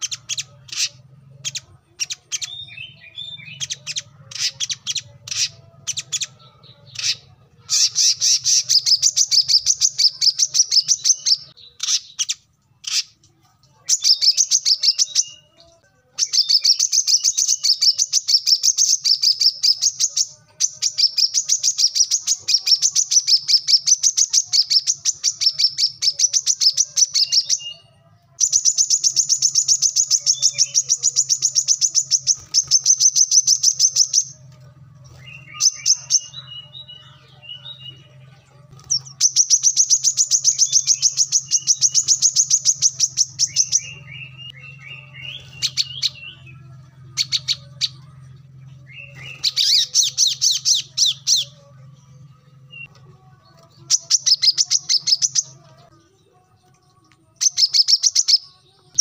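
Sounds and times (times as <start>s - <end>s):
bird chattering notes: 0.0s - 13.2s, 28.4s - 34.4s, 48.8s - 51.6s.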